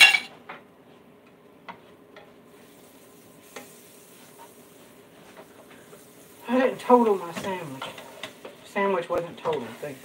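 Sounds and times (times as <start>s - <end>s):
sandwiches sizzling in a pan: 2.4s - 10.0s
utensils clicking on plate and pan: 7.3s - 8.6s.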